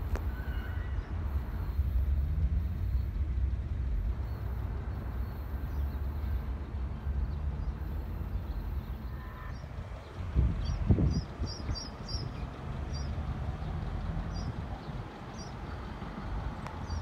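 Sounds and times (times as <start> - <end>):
distant light-rail train running: 0.0 - 17.0
wind rumble on microphone: 9.6 - 17.0.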